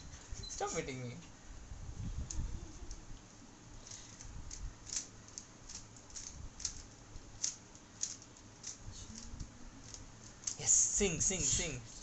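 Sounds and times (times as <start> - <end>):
puzzle cube plastic clicks: 4.1 - 10.6.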